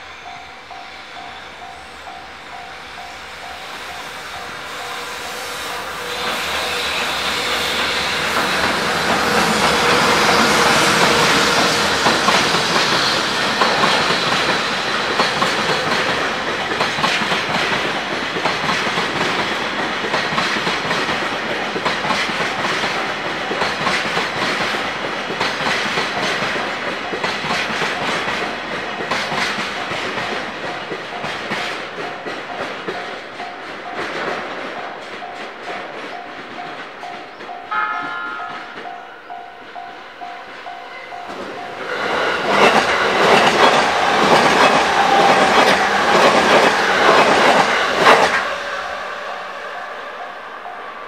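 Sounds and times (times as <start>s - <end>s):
electric locomotive passing: 0.0s - 51.0s.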